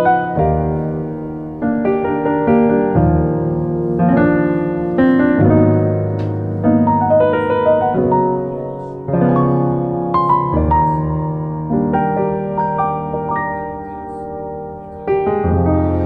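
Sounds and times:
background piano music: 0.0 - 16.0.

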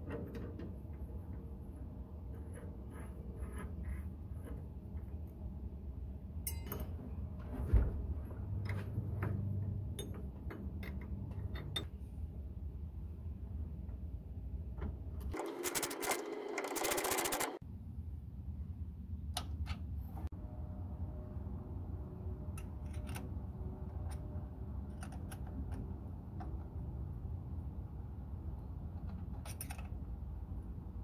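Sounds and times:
wrench clinking on metal: 6.4 - 7.0.

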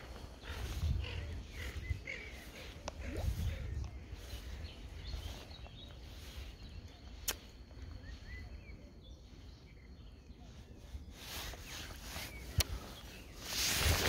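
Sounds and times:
faint bird chirps: 0.0 - 14.0
wind rumbling on microphone: 0.0 - 14.0
sharp click: 7.2 - 7.5.

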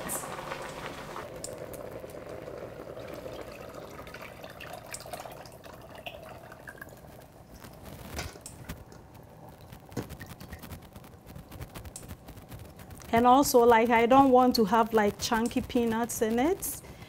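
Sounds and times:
liquid trickling and dripping: 0.1 - 7.8.

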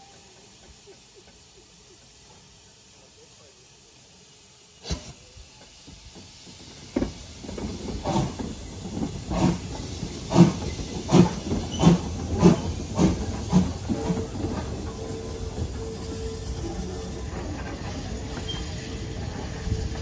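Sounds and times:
steam hissing: 0.0 - 20.0
locomotive exhaust chuffs: 4.2 - 20.0.

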